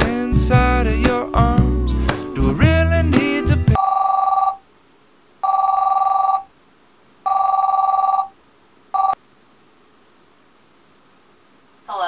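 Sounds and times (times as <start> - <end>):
two-tone phone ringing: 3.8 - 4.6, 5.4 - 6.5, 7.3 - 8.3, 9.0 - 9.2.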